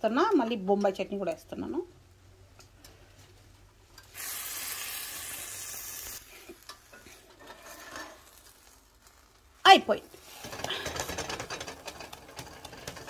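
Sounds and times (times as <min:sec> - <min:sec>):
batter sizzling on hot griddle: 0:04.0 - 0:13.0
ladle scraping: 0:06.7 - 0:09.5, 0:10.1 - 0:13.0.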